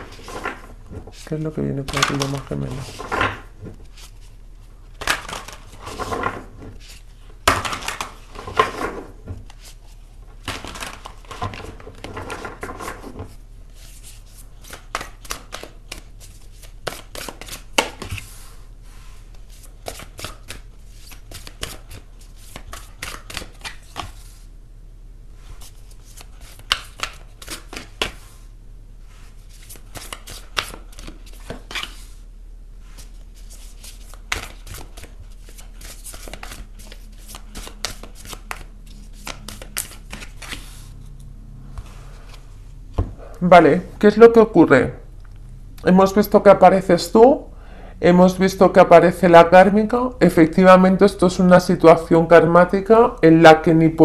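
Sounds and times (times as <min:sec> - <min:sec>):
cards shuffling: 0:00.0 - 0:04.3, 0:04.9 - 0:18.4, 0:19.3 - 0:24.4, 0:25.6 - 0:28.3, 0:29.4 - 0:32.2, 0:32.9 - 0:41.1
faint low hum: 0:00.0 - 0:54.0.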